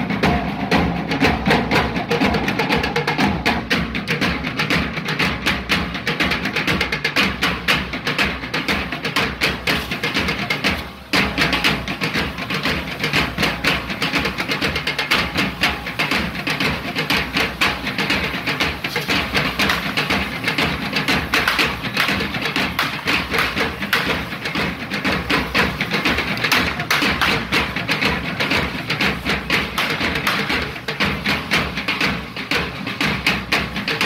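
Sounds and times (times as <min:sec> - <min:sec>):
drumming: 0:00.0 - 0:34.0
fireworks hissing and crackling: 0:09.5 - 0:32.2.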